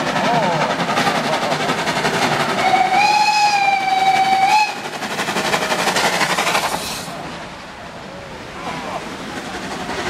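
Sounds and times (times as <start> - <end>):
steam locomotive exhaust chuffs: 0.0 - 7.3
steam locomotive whistle: 2.6 - 4.9.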